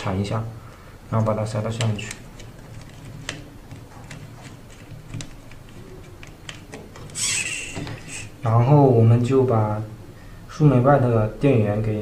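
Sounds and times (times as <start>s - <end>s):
wires rustling: 1.1s - 8.5s
plastic connectors clicking: 1.7s - 8.0s.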